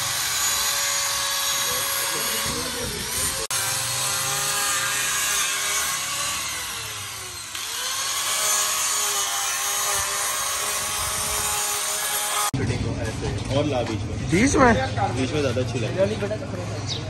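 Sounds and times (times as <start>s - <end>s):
angle grinder cutting: 0.0s - 12.6s.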